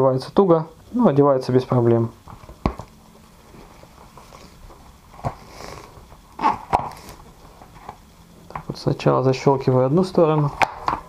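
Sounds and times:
bike tyre handling noise: 3.5s - 8.7s.

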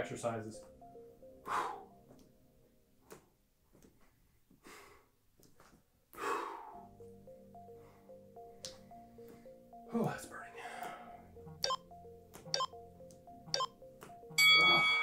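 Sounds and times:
man breathing hard: 1.4s - 2.0s, 4.6s - 5.2s, 6.1s - 6.9s.

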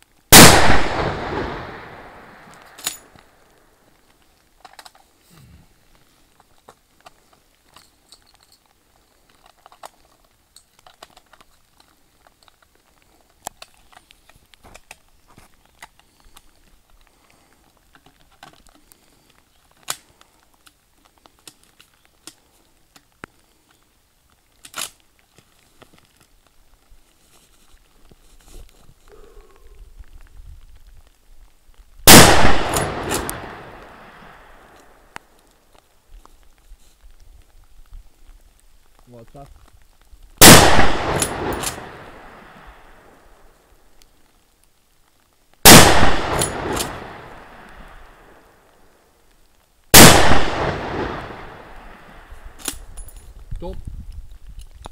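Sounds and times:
rifle shot echoing: 0.3s - 3.1s, 32.0s - 34.8s, 40.4s - 43.1s, 45.6s - 48.4s, 49.9s - 52.6s
faint ticks and clicks: 2.0s - 32.0s, 32.7s - 45.6s, 46.2s - 54.9s.

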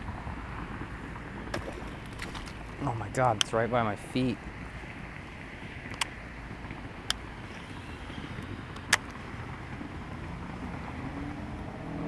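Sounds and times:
distant road traffic rumble: 0.0s - 12.0s
sharp clicks: 5.9s - 6.2s, 8.4s - 9.2s.

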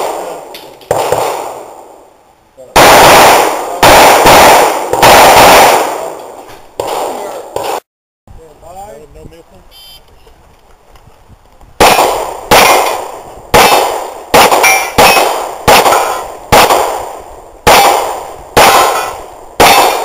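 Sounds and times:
handgun shots: 6.8s - 7.8s, 11.8s - 13.0s, 13.6s - 17.0s, 17.7s - 20.0s.

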